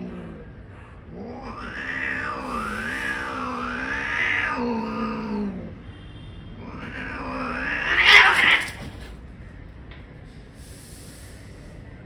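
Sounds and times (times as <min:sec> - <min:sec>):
cat hissing: 0:00.0 - 0:05.7, 0:06.6 - 0:09.1
cat growling: 0:00.0 - 0:05.8, 0:06.6 - 0:09.1.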